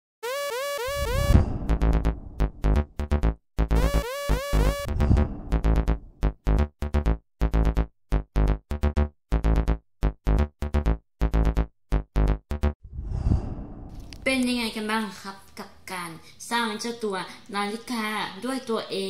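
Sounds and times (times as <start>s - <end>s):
chopped synth chords: 0.2s - 12.8s
rising synth figure: 0.3s - 12.8s
deep bass: 1.0s - 4.0s, 4.6s - 14.2s.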